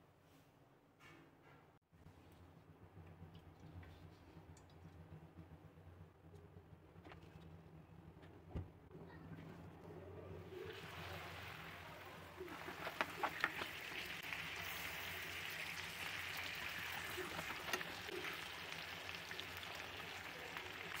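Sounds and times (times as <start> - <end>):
liquid simmering in a pan: 10.4 - 21.0.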